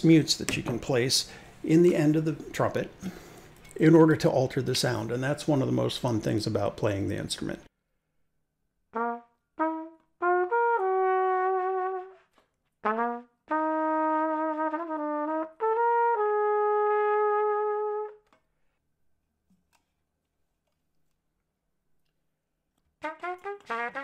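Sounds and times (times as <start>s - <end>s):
trumpet playing sustained notes: 9.0s - 18.3s, 23.0s - 24.0s.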